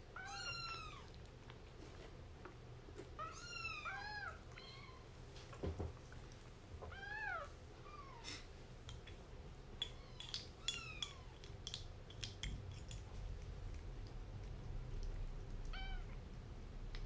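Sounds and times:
plastic spoon clicking in bowls: 0:09.8 - 0:13.1.

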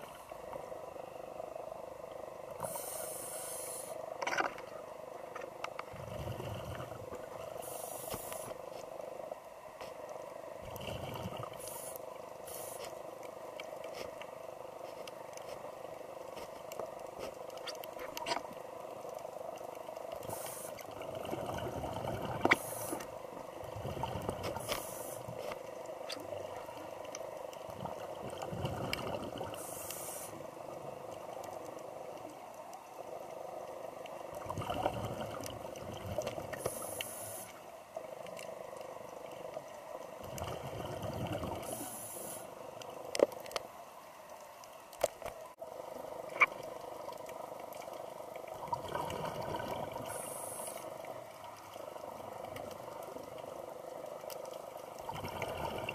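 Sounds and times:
underwater water noise: 0:00.0 - 0:55.9
gurgling exhaled bubbles: 0:05.9 - 0:07.6, 0:10.6 - 0:11.6, 0:20.2 - 0:22.6, 0:23.6 - 0:24.7, 0:27.7 - 0:29.6, 0:34.3 - 0:36.6, 0:40.2 - 0:41.8, 0:48.5 - 0:50.5, 0:55.0 - 0:55.9.

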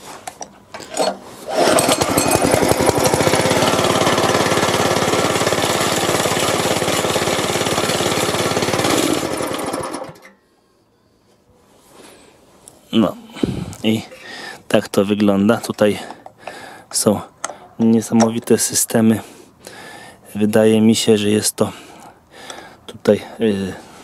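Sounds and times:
small engine pull-started and running: 0:00.9 - 0:10.4.

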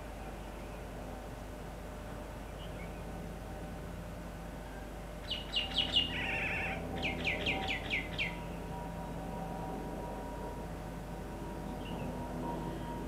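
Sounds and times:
low hum and hiss: 0:00.0 - 0:13.0
songbird singing: 0:02.4 - 0:03.1, 0:04.7 - 0:08.7, 0:11.6 - 0:13.0
buzzy bird trill: 0:05.3 - 0:08.4.

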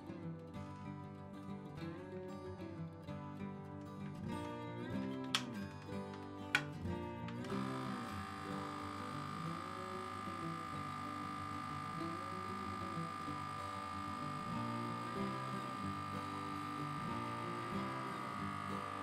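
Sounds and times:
vacuum sealer pump whining: 0:07.3 - 0:19.0.

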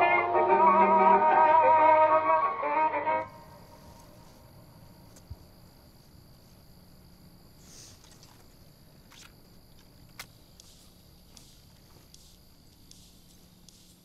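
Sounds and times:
crickets chirping: 0:00.0 - 0:14.0.

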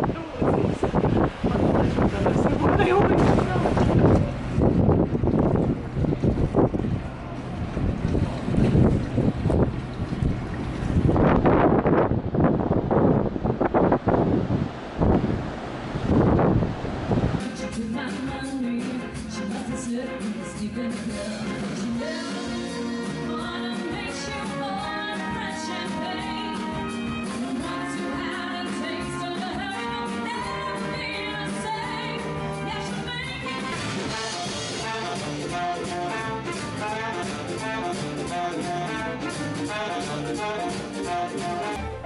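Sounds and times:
jazz music: 0:17.4 - 0:42.0.

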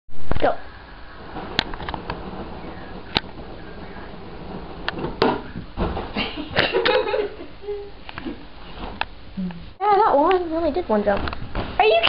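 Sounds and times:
sharp handling knocks: 0:01.4 - 0:06.2.

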